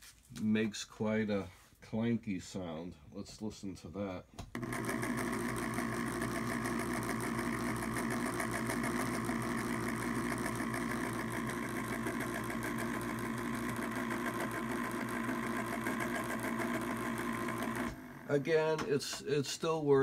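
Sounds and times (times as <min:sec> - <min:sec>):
gear motor humming and clanking: 0:04.6 - 0:18.4.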